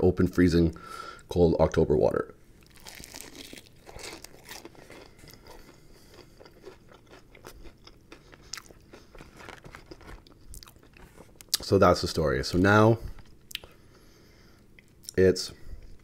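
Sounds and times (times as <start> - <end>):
crunching fried chicken: 2.6 - 11.8.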